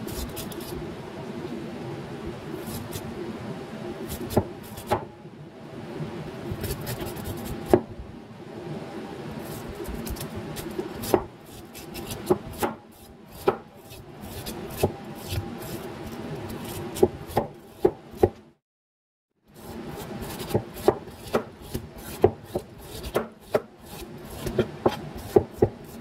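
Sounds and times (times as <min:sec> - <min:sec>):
knife scraping bamboo husk: 0:00.0 - 0:00.8, 0:09.4 - 0:17.9, 0:19.6 - 0:26.0
knife chopping on cutting board: 0:10.0 - 0:12.8, 0:13.4 - 0:15.4, 0:16.6 - 0:18.4, 0:20.3 - 0:26.0.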